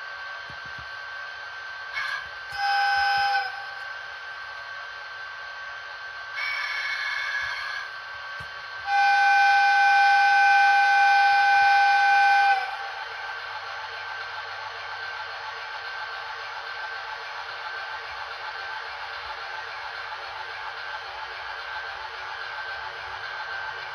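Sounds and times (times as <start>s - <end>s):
locomotive running hum: 0.0s - 23.9s
locomotive whistle blasts: 2.0s - 4.0s, 6.4s - 7.9s, 8.8s - 13.2s.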